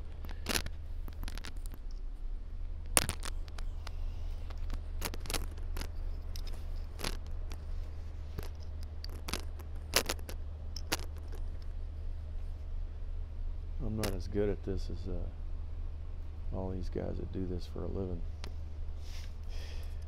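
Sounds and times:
small metal parts clinking: 0.0s - 2.0s, 3.0s - 11.7s
steady low hum: 0.0s - 20.0s.

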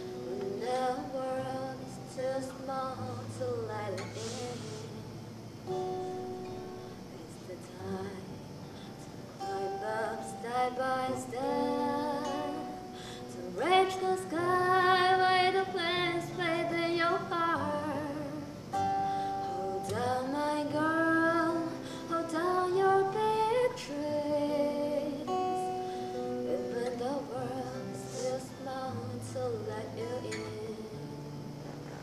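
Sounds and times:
woman singing: 0.0s - 5.2s, 6.5s - 31.7s
acoustic guitar: 0.0s - 32.0s.

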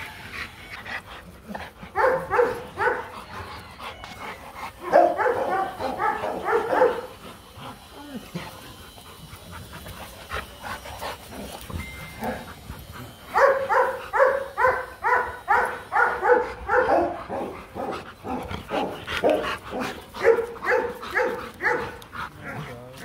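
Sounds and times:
dog barking: 2.0s - 3.1s, 4.8s - 7.1s, 13.4s - 22.0s.

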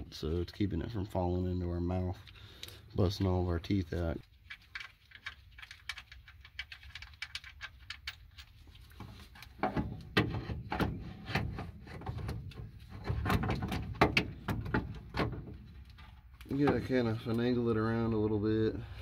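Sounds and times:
metal clicks knocks and scrapes: 4.2s - 17.4s.

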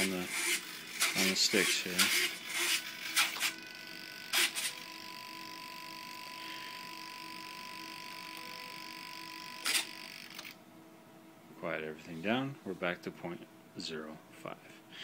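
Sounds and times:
servos whirring: 0.0s - 10.6s
stalled servo whine and hum: 0.0s - 10.6s.

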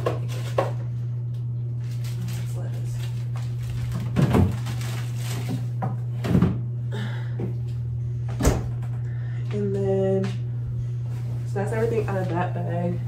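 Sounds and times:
refrigerator hum: 0.0s - 13.0s
items thudding on shelves: 3.8s - 6.7s.

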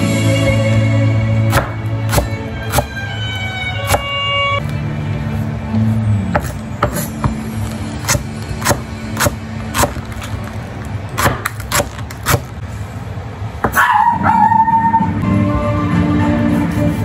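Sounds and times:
knife chopping on wooden board: 1.5s - 2.9s, 3.8s - 4.1s, 6.3s - 7.4s, 8.0s - 10.0s, 11.2s - 12.5s.

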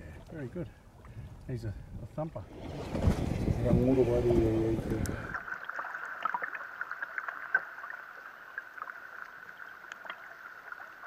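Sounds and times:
thin high underwater hum: 2.3s - 5.8s.

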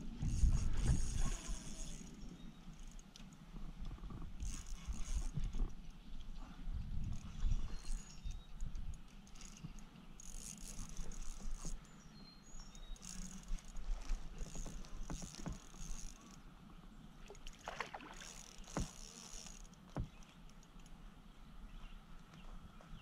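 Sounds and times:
water lapping around kayak: 0.0s - 22.9s
cicadas buzzing: 12.7s - 16.4s.

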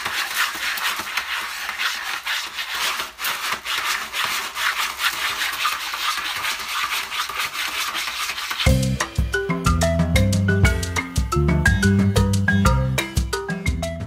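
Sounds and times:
cat scratching in litter: 0.0s - 8.7s.

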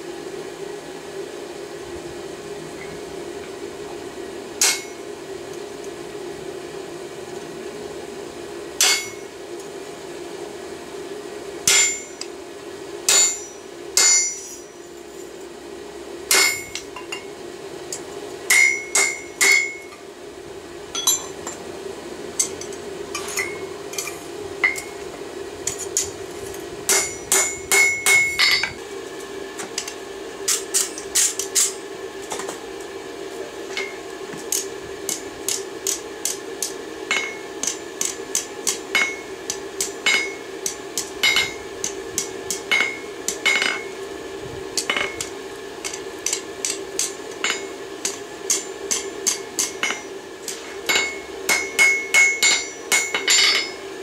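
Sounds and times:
steady hum: 0.0s - 54.0s
hammer striking steel on anvil: 4.6s - 5.0s, 8.8s - 9.3s, 11.6s - 12.3s, 13.1s - 14.8s, 16.3s - 17.3s, 18.5s - 20.0s, 20.9s - 21.6s, 22.4s - 25.0s, 26.9s - 28.8s, 33.7s - 43.9s, 44.8s - 53.8s
anvil ringing: 8.8s - 9.2s, 13.1s - 14.7s, 16.3s - 17.2s, 18.5s - 19.9s, 20.9s - 21.4s, 26.9s - 28.8s, 50.9s - 53.8s.

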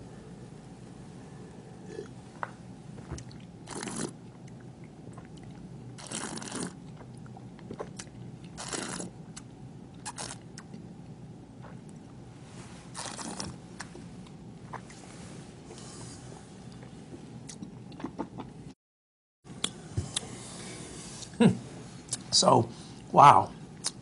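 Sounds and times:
person slurping wine: 3.2s - 4.2s, 6.0s - 9.1s, 12.9s - 13.6s.

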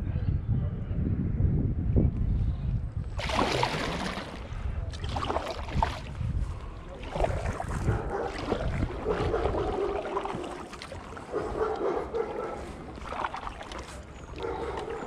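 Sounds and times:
wind rumble on microphone: 0.0s - 15.0s
kayak paddling: 3.2s - 15.0s.

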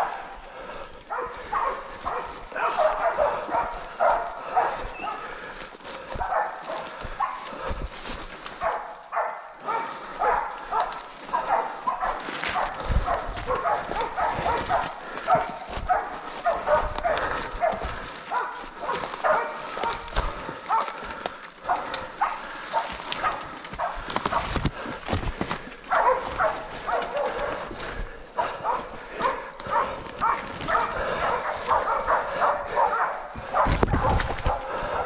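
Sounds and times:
dogs barking: 0.0s - 25.0s, 25.8s - 35.0s
footsteps through leaf litter: 9.9s - 24.6s, 25.2s - 33.8s.

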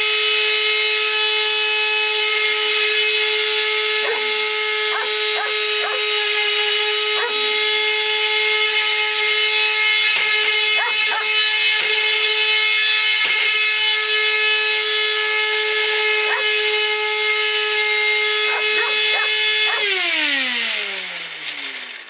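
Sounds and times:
vacuum cleaner motor whine: 0.0s - 22.0s
dog whining: 3.9s - 7.6s, 10.7s - 11.5s, 16.2s - 16.7s, 18.4s - 20.0s.

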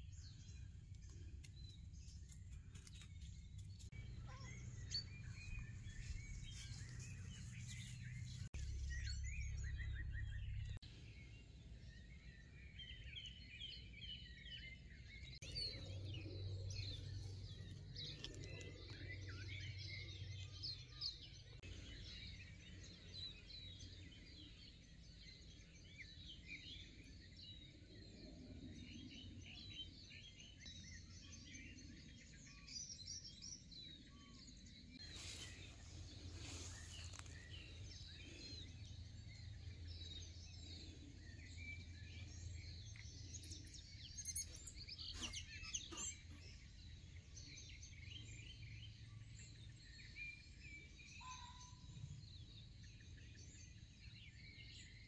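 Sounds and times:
small birds chirping: 0.0s - 55.0s
low rumble: 3.8s - 11.6s.

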